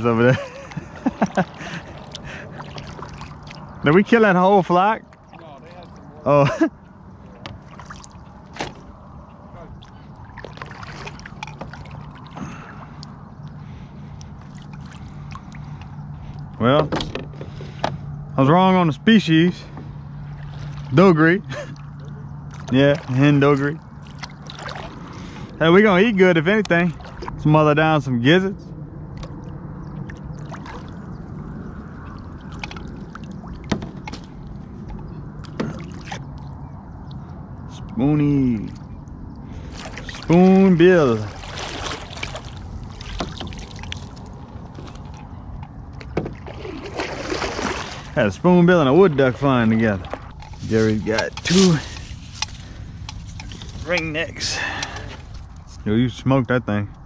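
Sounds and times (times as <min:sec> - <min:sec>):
paddle pulling through water: 0:00.0 - 0:18.3, 0:19.2 - 0:27.4, 0:29.0 - 0:37.8, 0:38.4 - 0:55.8
paddle knocking against hull: 0:33.6 - 0:36.2, 0:41.3 - 0:45.2, 0:46.0 - 0:48.0.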